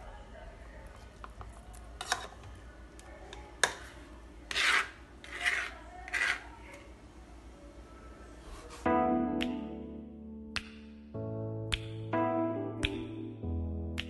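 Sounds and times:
knife scraping plastic cutting board: 4.5s - 6.6s.

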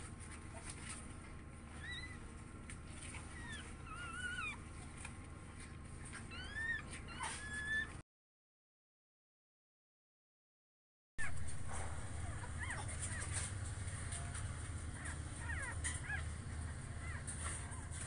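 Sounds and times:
puppies squeaking: 1.7s - 2.4s, 3.0s - 4.7s, 6.0s - 8.0s, 11.2s - 18.0s.

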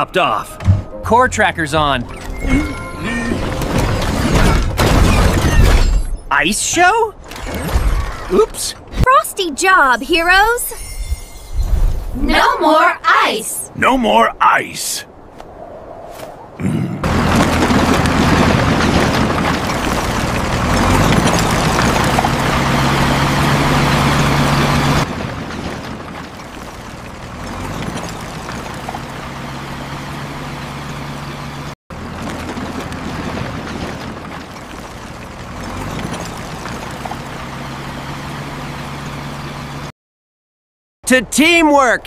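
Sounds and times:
construction machinery engines running: 17.0s - 39.9s.

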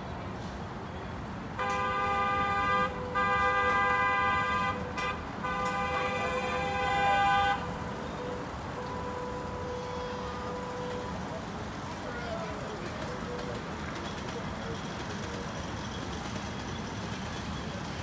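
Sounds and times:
miniature train horn blasts: 1.6s - 11.5s.

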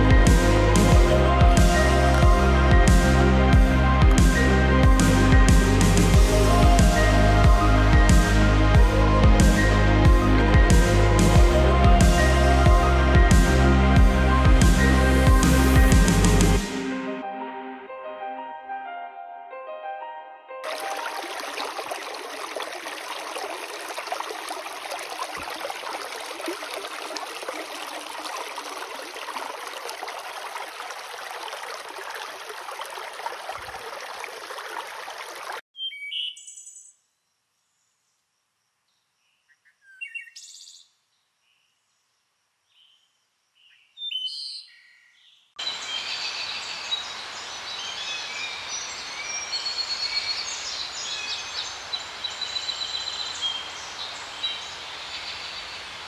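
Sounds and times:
creek running over rocks: 20.6s - 35.6s.

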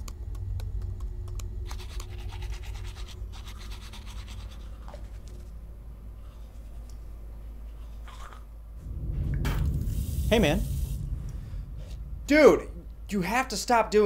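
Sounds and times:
low steady hum: 0.0s - 14.0s
toothbrush scrubbing teeth: 1.6s - 5.5s, 7.7s - 8.5s.

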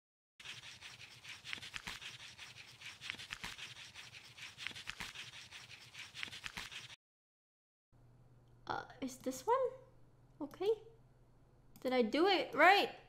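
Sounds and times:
pen scribbling on paper: 0.4s - 7.0s.

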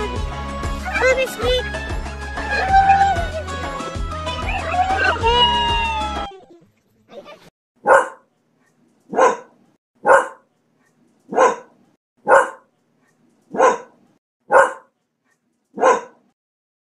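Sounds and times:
dog barking: 7.8s - 8.3s, 9.1s - 10.5s, 11.3s - 12.7s, 13.5s - 15.0s, 15.8s - 16.3s.

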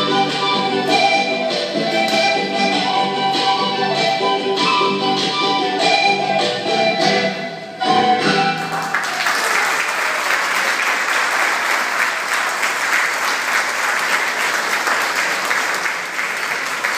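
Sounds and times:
folk dance music: 0.0s - 9.8s
audience applause: 8.7s - 16.9s.

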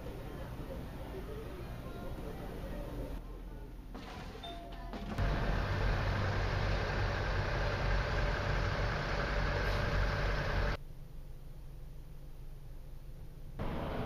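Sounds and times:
diesel truck engines idling: 5.2s - 10.8s.

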